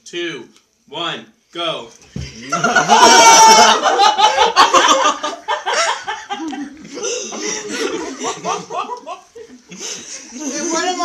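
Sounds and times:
group of people laughing: 2.4s - 11.0s.

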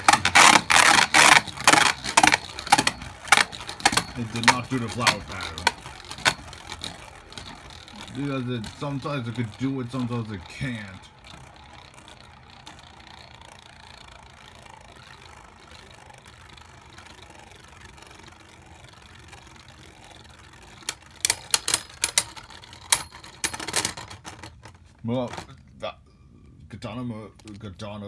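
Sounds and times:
plastic tops clacking together: 0.0s - 12.9s, 19.1s - 25.6s
spinning tops whirring: 0.0s - 25.5s.

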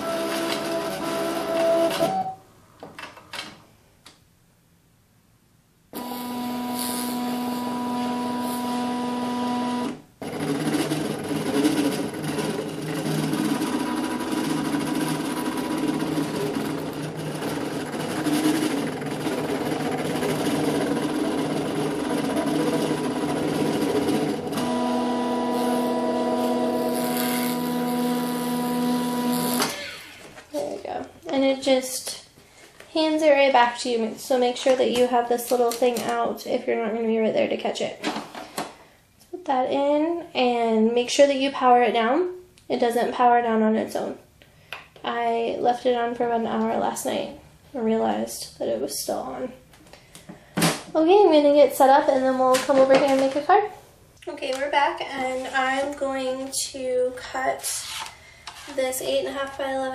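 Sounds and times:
cutting machine motors whining: 0.0s - 2.3s, 6.0s - 30.3s.

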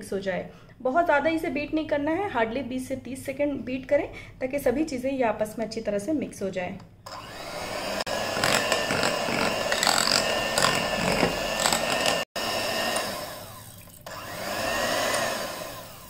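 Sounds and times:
electric hand mixer running: 7.1s - 16.0s
mixer clicks: 8.1s - 16.0s.

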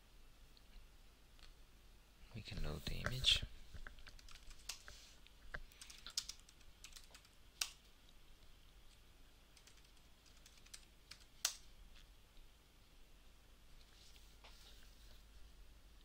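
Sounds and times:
computer keyboard typing: 4.1s - 4.9s, 5.7s - 7.8s, 9.6s - 11.6s.

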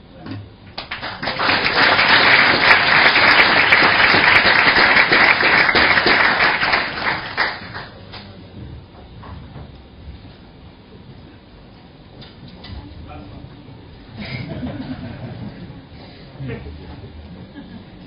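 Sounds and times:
crowd applauding: 0.8s - 8.0s.

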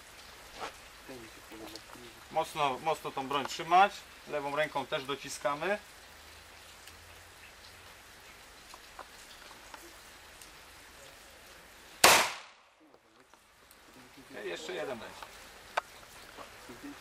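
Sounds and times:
pistol shot: 12.0s - 12.6s.

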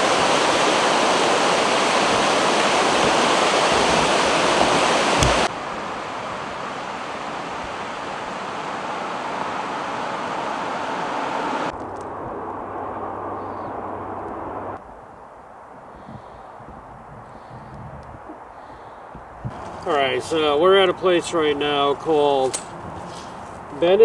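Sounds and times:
river rapids rushing: 0.0s - 11.7s.

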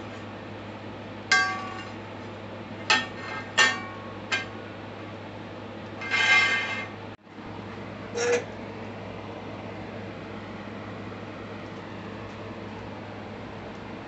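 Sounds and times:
metal rattling scrape: 6.0s - 7.0s.

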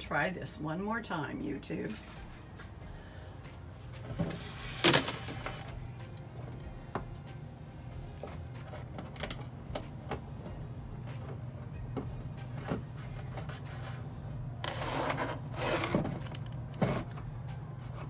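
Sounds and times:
steady low hum: 0.0s - 18.0s
wires clicking and knocking: 8.2s - 13.6s
wires scraping through hole: 13.4s - 17.2s.

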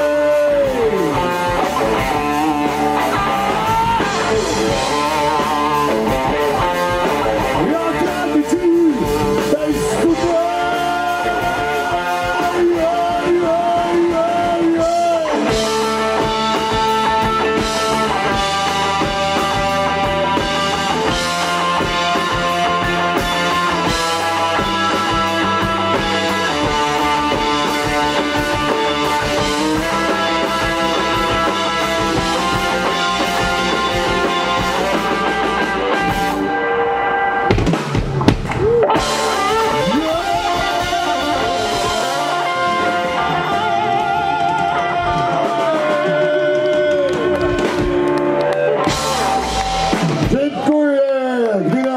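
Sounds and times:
drum kit: 0.0s - 51.4s
bass guitar: 0.0s - 51.9s
electric guitars: 0.0s - 51.9s.

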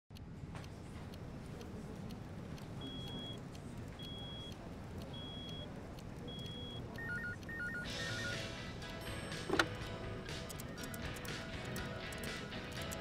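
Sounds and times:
short high beeps: 6.3s - 8.4s.

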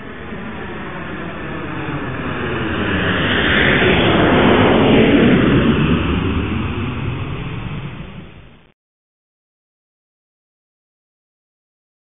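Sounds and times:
jet aircraft flying past: 0.0s - 8.7s.

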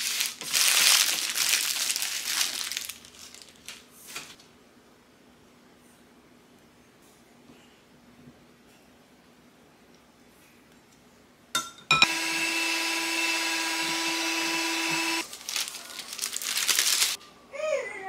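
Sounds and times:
parchment paper crackling: 0.0s - 4.4s, 14.6s - 17.2s
electric hand mixer whirring: 12.0s - 15.2s.

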